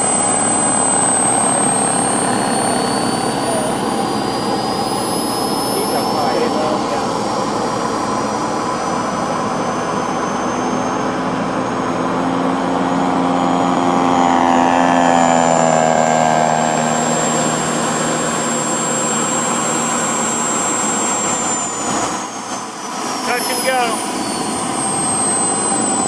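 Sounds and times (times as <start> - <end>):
model plane engine flying past: 0.0 - 26.0.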